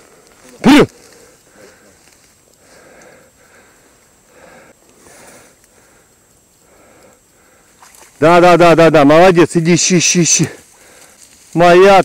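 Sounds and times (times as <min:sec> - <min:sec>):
person breathing: 0:00.0 - 0:08.1, 0:10.5 - 0:11.5.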